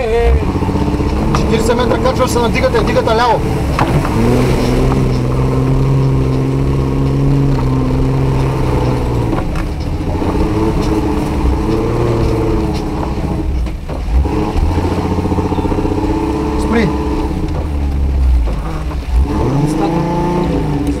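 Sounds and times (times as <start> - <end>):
car engine under load: 0.0 - 21.0
suspension knocking over bumps: 0.0 - 21.0.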